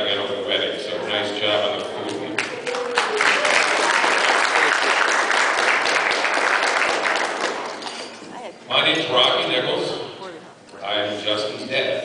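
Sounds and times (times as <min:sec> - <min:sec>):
crowd applauding: 0:02.1 - 0:08.2.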